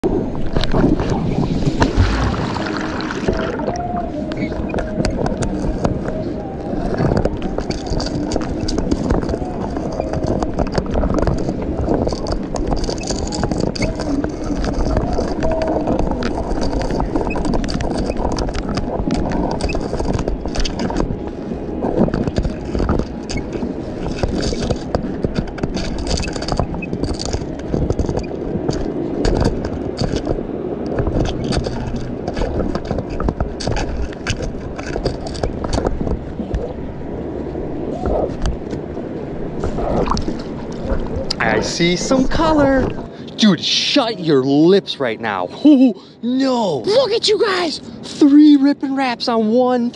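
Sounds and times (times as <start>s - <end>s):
magnet scraping underwater: 0.0s - 43.1s
small clicks and knocks: 21.9s - 36.7s.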